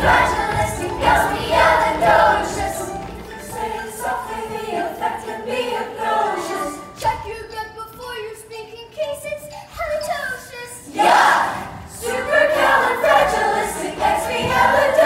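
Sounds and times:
children singing: 0.0s - 7.1s, 10.9s - 15.0s.

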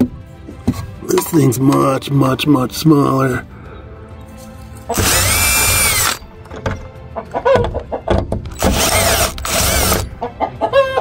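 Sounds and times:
cordless drill motor whine: 4.9s - 6.2s, 8.6s - 10.1s
chickens clucking: 7.1s - 8.1s, 10.1s - 11.0s.

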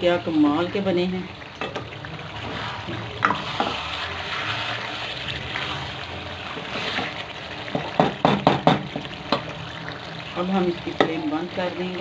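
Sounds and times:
curry sizzling in a wok: 0.0s - 12.0s
spatula knocking and scraping pan: 3.2s - 3.9s, 6.5s - 9.5s.

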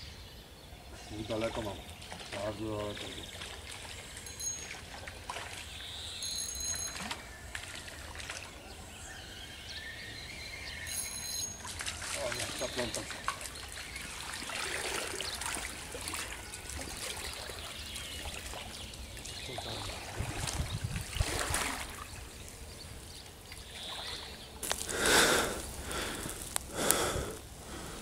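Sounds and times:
stream water trickling: 1.2s - 9.7s, 10.6s - 27.9s
fish splashing into net: 20.1s - 22.1s.

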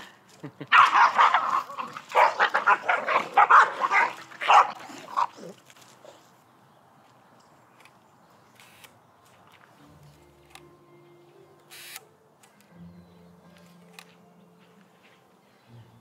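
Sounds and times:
dog barking: 0.7s - 4.8s.

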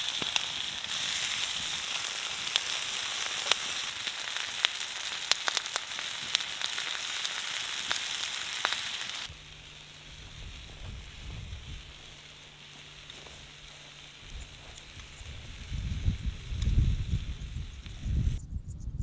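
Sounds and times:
vegetables sizzling on a grill: 0.0s - 18.1s
low rumbling: 9.3s - 19.0s.

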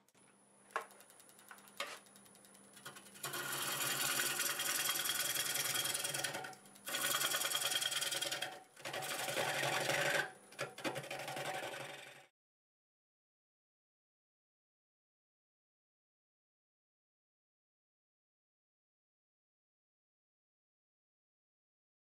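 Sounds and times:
gouge cutting wood on lathe: 2.8s - 12.3s.

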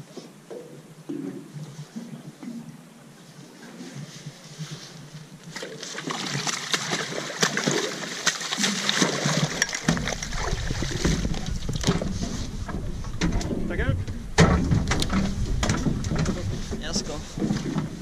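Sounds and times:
water splashing and slapping: 3.5s - 18.0s
fish knocking against boat: 9.0s - 18.0s
low steady rumble: 9.6s - 18.0s.

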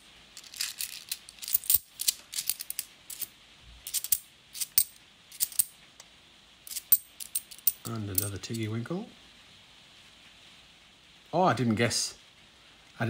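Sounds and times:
coins clicking and clinking: 0.4s - 5.7s, 6.7s - 8.5s.

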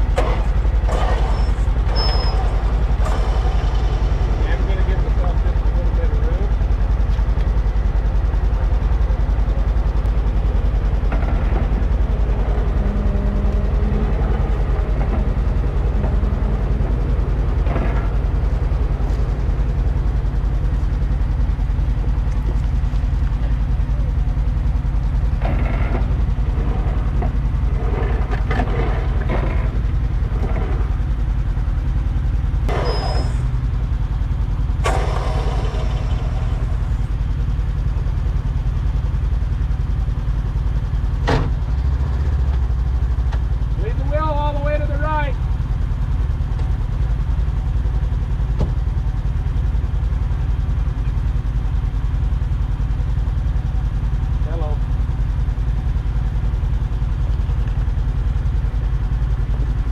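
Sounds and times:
engine idling: 0.0s - 59.9s.

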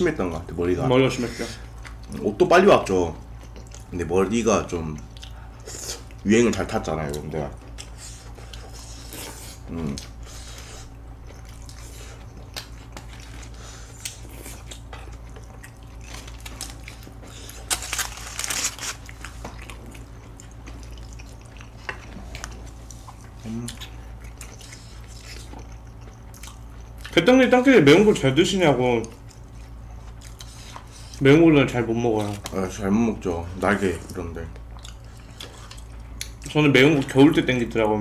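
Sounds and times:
mouth sounds of eating: 4.7s - 16.1s, 19.9s - 31.4s
aluminium foil crinkling: 16.0s - 19.4s.

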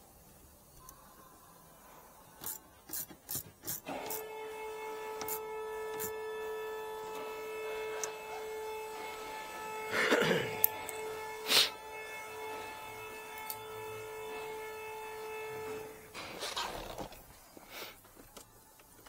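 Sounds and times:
steady pitched tone: 4.1s - 16.4s.

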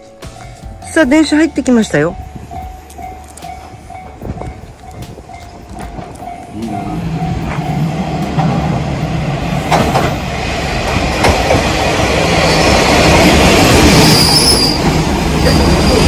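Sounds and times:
diesel railcar engine drone: 0.0s - 16.0s
train wheel rumble: 0.3s - 16.0s
brake squeal: 12.4s - 13.0s, 13.7s - 16.0s.

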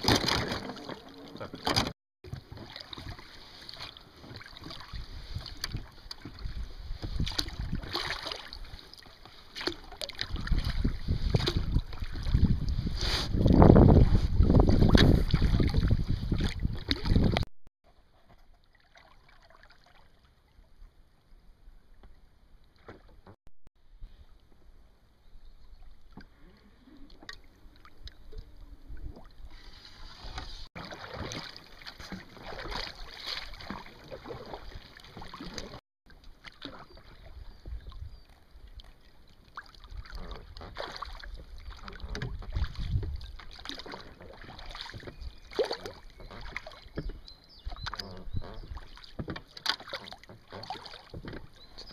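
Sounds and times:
oars splashing in water: 0.0s - 17.5s, 25.8s - 51.9s
water lapping around boat: 0.0s - 23.4s, 24.0s - 51.9s
wind on microphone: 4.9s - 8.0s, 10.3s - 17.5s, 41.7s - 43.4s.

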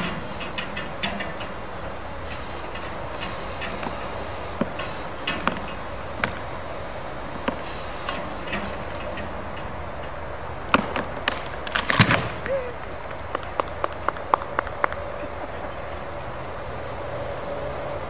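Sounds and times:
tree trunk hitting ground: 10.7s - 12.4s
wood cracking and snapping: 10.8s - 12.5s.

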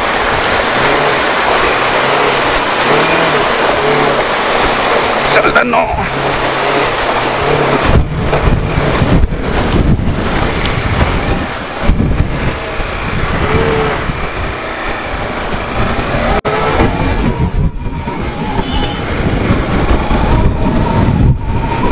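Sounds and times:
water splashing: 0.0s - 21.9s
wind buffeting on microphone: 0.0s - 21.9s
motorcycle engine running: 6.1s - 15.2s.

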